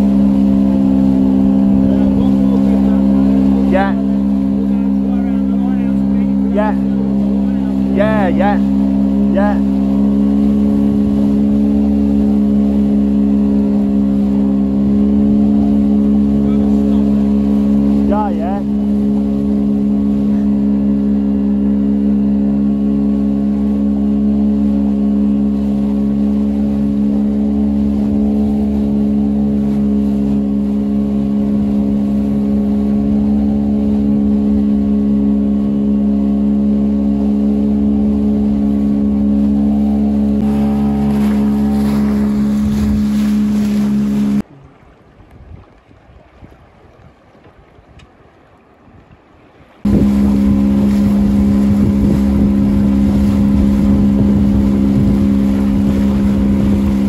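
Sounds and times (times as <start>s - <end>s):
faint wind: 0.0s - 57.0s
outboard motor humming: 0.0s - 57.0s
water rushing past hull: 0.0s - 57.0s
lapping water: 38.0s - 57.0s.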